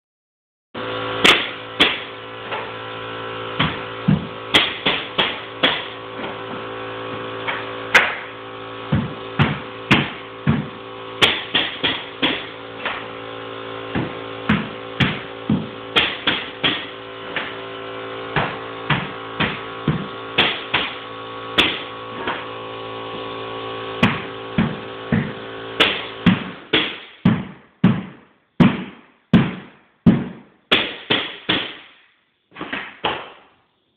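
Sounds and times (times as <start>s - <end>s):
steady hum: 0.8s - 33.9s
mallet knocks on cleat nailer: 8.9s - 13.0s, 13.9s - 17.6s, 18.4s - 21.0s, 21.6s - 22.4s, 24.0s - 31.8s.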